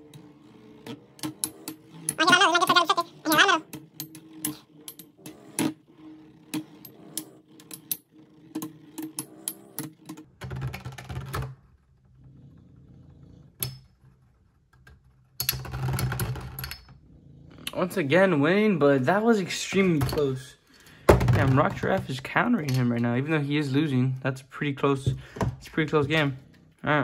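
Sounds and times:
spinning tops whirring: 0:00.0 - 0:10.4.

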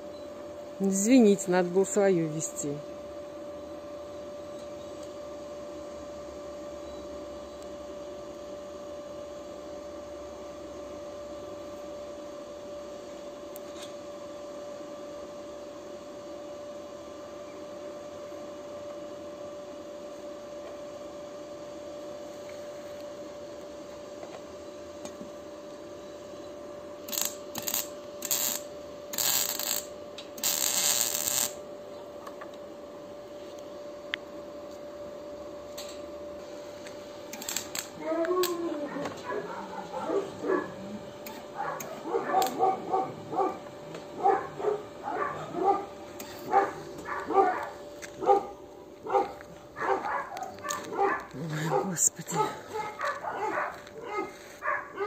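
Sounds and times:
steady high hum: 0:00.0 - 0:55.0
welding arc crackling: 0:27.0 - 0:31.6, 0:36.4 - 0:38.6, 0:41.2 - 0:52.3.

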